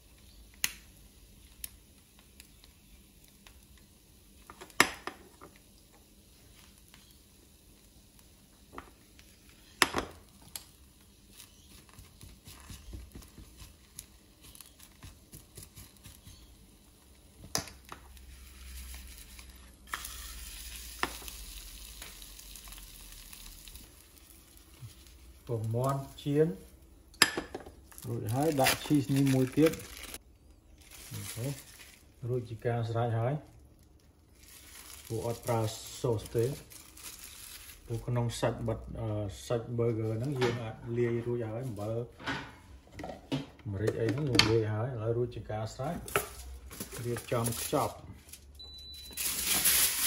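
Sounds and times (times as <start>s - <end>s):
egg sizzling in a frying pan: 0.0s - 30.2s, 33.7s - 38.0s.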